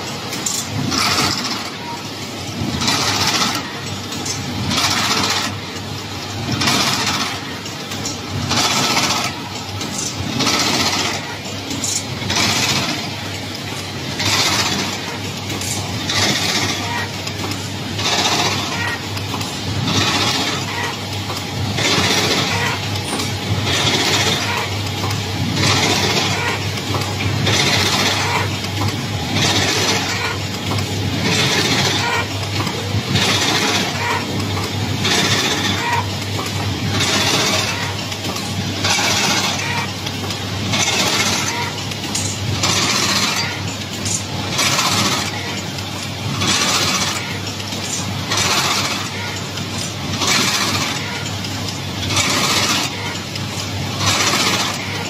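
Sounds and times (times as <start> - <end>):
noisy machine stroke: 6.5 - 45.6.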